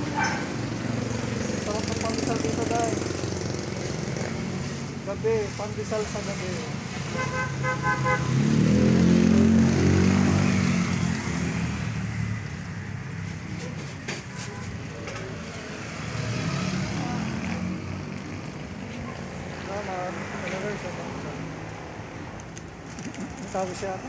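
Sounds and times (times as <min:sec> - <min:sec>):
vehicle engine passing by: 0:08.1 - 0:14.0, 0:15.1 - 0:22.1
quieter vehicle passing: 0:08.2 - 0:13.7, 0:15.3 - 0:24.0.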